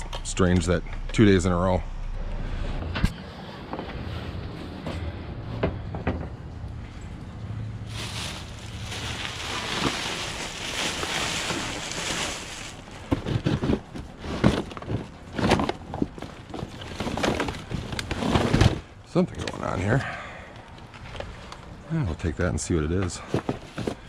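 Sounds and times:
plastic bag rustling: 7.8s - 18.7s
rubbish and cardboard clattering: 7.9s - 18.9s, 23.0s - 24.0s.

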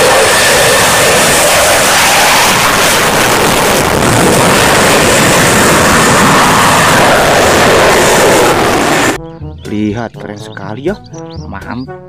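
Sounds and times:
fighter jet flying past: 0.0s - 9.2s.

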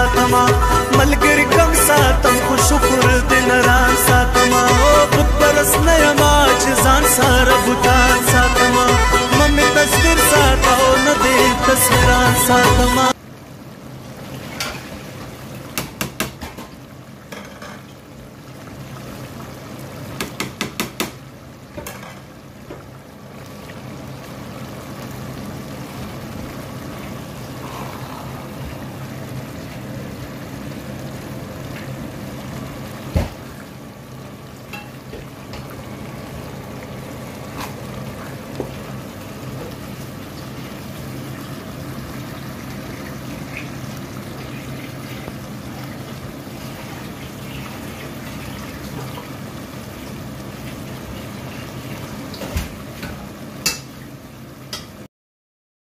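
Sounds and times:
pot simmering and bubbling: 13.1s - 55.1s.

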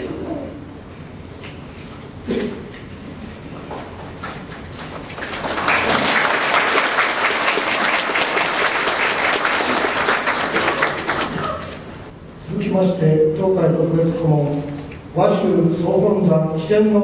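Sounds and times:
audience applauding: 4.4s - 12.1s.

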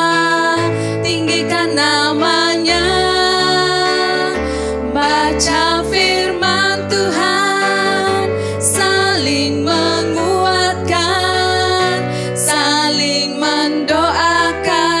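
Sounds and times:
musical backing track: 0.0s - 15.0s
women singing into microphones: 0.0s - 15.0s.

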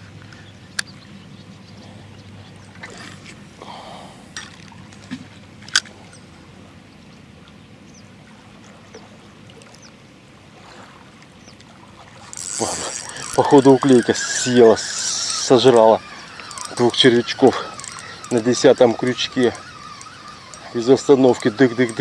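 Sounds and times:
faint outdoor background: 0.0s - 22.0s
fishing reel clicks: 12.2s - 22.0s.

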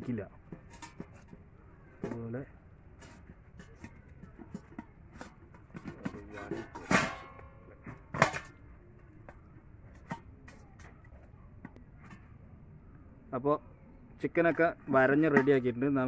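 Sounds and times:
steel plate clanking: 2.9s - 8.6s.

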